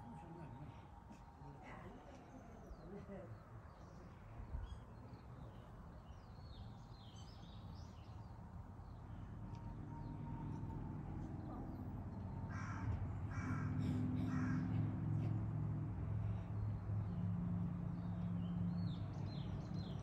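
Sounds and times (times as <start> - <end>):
crow cawing: 12.5 - 14.9.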